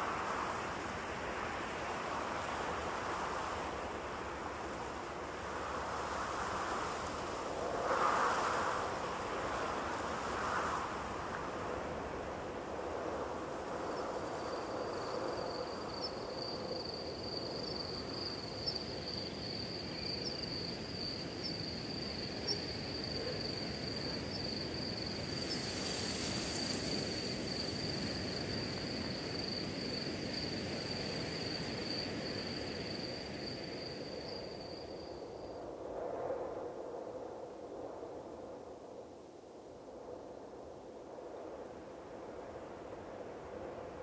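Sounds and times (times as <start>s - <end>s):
high-pitched insect trill: 13.3s - 35.6s.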